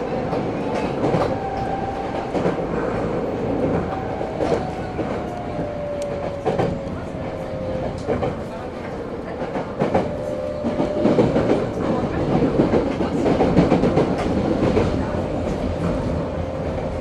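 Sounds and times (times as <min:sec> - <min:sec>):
subway train wheels rumbling: 0:00.0 - 0:17.0
clacks over rail joints: 0:07.8 - 0:16.2.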